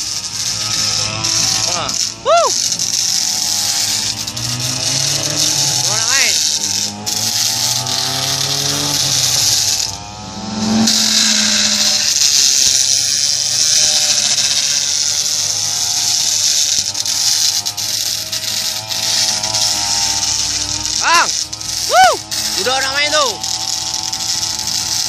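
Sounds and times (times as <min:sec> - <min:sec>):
blade grinding on concrete: 0:00.0 - 0:25.0
brush cutter engine revving: 0:00.0 - 0:25.0.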